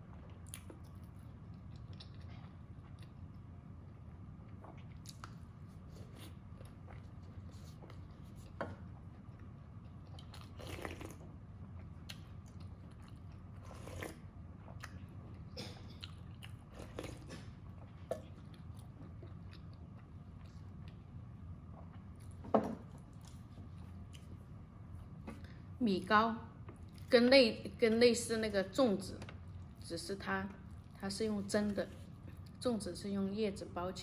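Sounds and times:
wet chewing and mouth noises: 0.0s - 25.6s
low steady hum: 0.0s - 34.0s.

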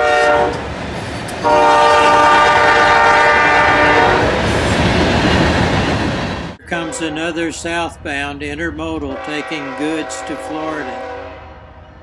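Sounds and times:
train horn: 0.0s - 0.6s, 1.4s - 4.3s, 9.1s - 12.0s
freight cars rumbling on rails: 0.0s - 11.1s.

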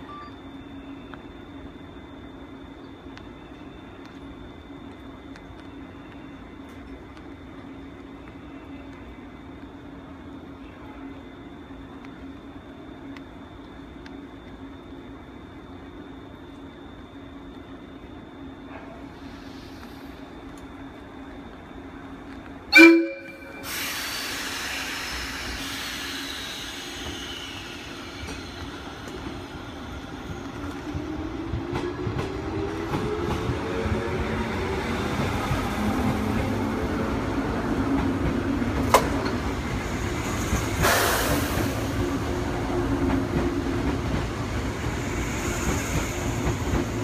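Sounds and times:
train horn blast: 22.7s - 23.8s
train motors whining: 23.4s - 47.0s.

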